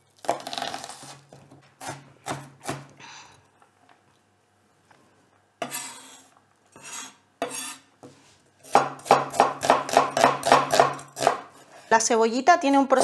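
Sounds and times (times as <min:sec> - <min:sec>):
knife slicing onion on board: 0:00.2 - 0:02.9, 0:05.6 - 0:11.7
knife chopping on wooden board: 0:08.6 - 0:11.5.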